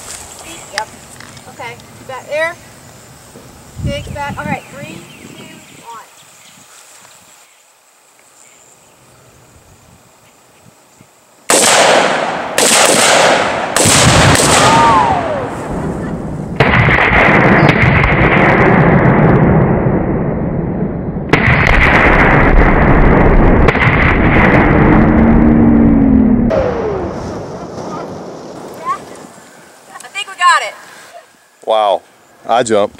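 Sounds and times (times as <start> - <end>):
rifle shots cracking: 11.5 - 15.0, 16.6 - 18.9, 21.3 - 22.9, 23.5 - 24.7
explosive targets booming: 11.5 - 28.3.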